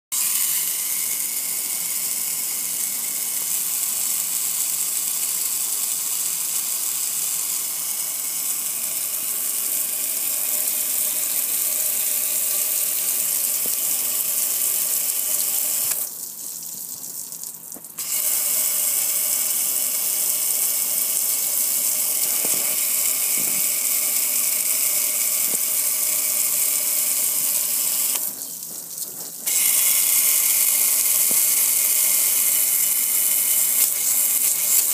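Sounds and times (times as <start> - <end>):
hose spraying water on metal: 0.2 - 17.2, 17.8 - 34.9.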